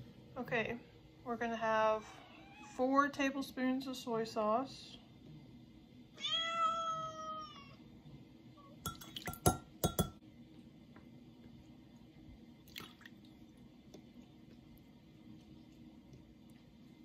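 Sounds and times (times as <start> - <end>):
metal spoon clinking on glass: 8.9 - 10.2.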